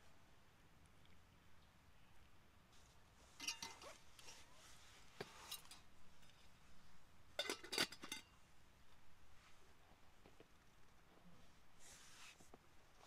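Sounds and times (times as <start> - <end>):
metal cook pot clinks: 3.4 - 3.8, 7.4 - 8.3.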